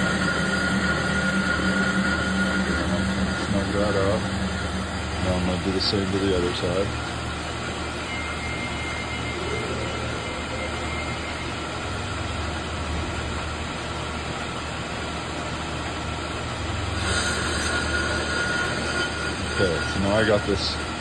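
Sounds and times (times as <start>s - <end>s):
cutting bit scratching metal: 0.0s - 6.6s, 17.0s - 20.9s
lathe humming: 0.0s - 21.0s.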